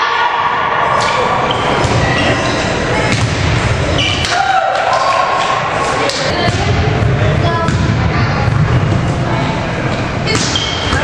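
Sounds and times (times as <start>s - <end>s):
volleyball being hit: 3.1s - 8.7s.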